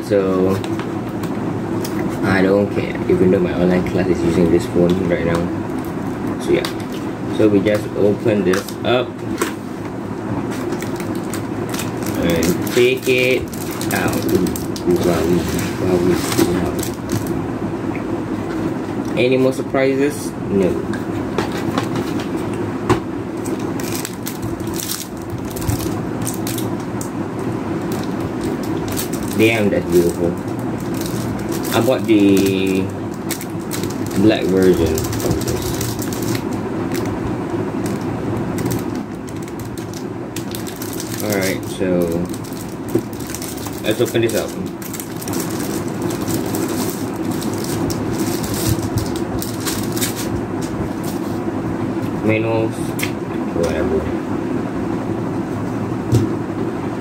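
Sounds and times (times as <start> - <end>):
low background hum: 0.0 - 57.0
plastic film crinkling: 10.5 - 17.4, 23.4 - 27.1, 27.8 - 37.2, 37.8 - 51.4.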